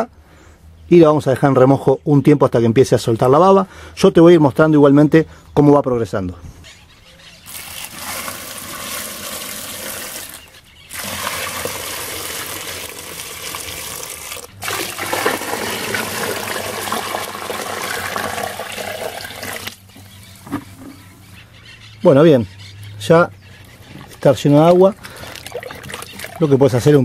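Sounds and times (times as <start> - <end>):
water pouring and splashing: 7.5 - 19.9, 24.0 - 27.0.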